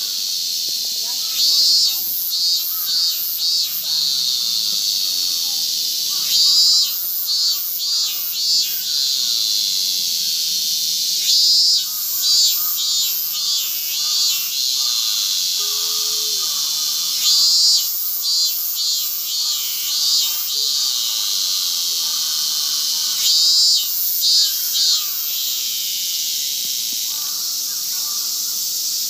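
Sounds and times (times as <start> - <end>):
cicadas chorus hiss: 0.0 - 29.0
pulsed cicada song: 0.0 - 29.0.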